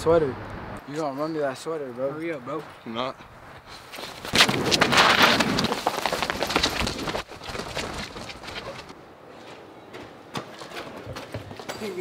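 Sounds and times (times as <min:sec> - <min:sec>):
running footsteps on pavement: 0:02.6 - 0:12.0.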